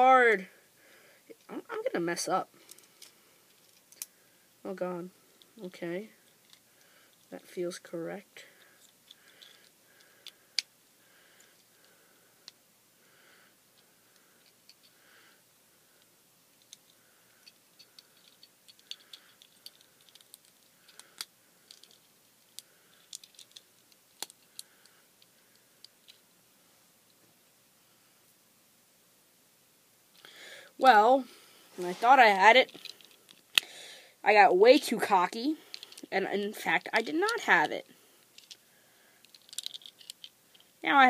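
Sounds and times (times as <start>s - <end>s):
plastic toy parts clicking: 16.6s - 26.2s, 35.7s - 36.1s, 38.3s - 38.6s, 39.2s - 40.7s.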